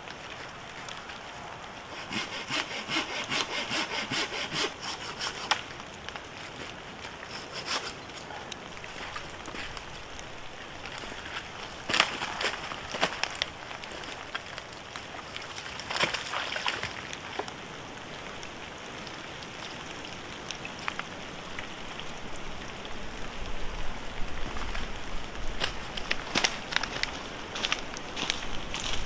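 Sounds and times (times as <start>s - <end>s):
rain pattering in woodland: 0.0s - 29.0s
dead wood crackling and knocking: 4.8s - 17.6s, 25.5s - 29.0s.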